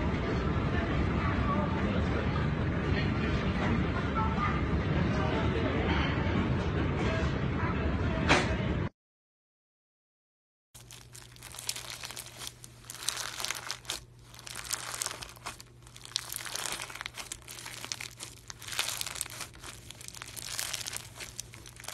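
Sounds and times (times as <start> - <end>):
slime crackling and crunching: 10.8 - 21.9.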